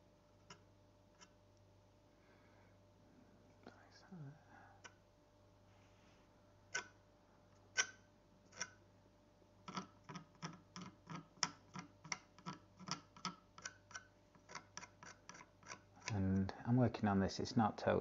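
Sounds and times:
palette knife scratching paint: 0:09.7 - 0:16.2.

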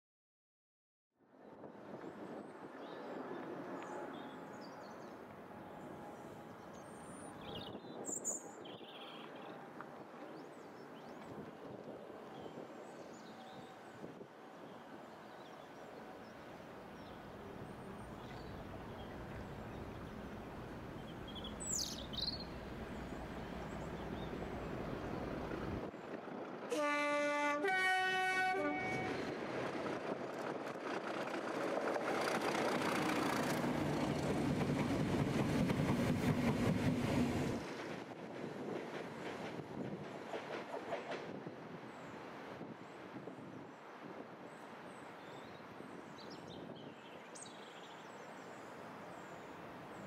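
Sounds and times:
two-tone train horn: 0:26.7 - 0:29.3
train wheels passing: 0:28.2 - 0:42.4.

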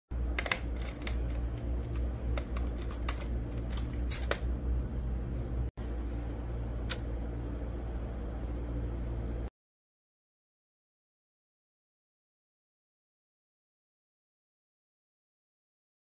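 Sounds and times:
steady low hum: 0:00.1 - 0:09.5.

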